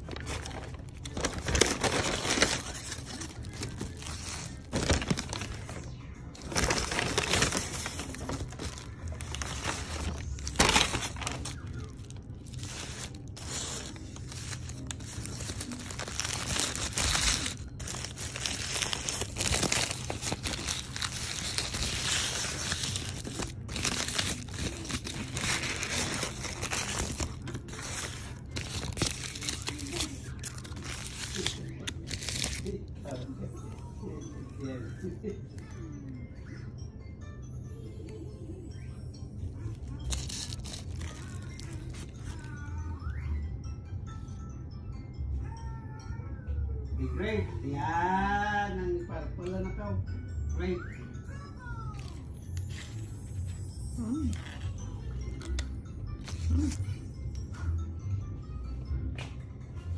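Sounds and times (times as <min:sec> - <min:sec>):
paper and foil wrapper crinkling: 0:00.0 - 0:33.8, 0:39.6 - 0:42.8, 0:51.9 - 0:57.1.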